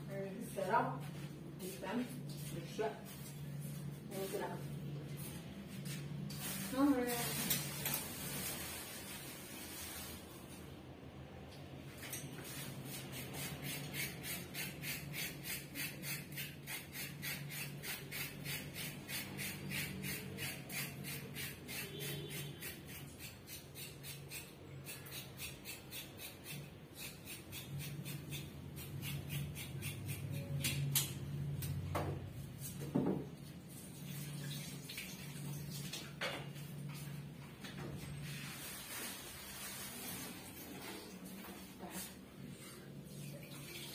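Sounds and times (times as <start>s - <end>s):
rhythmic scraping at sink: 12.0s - 30.8s.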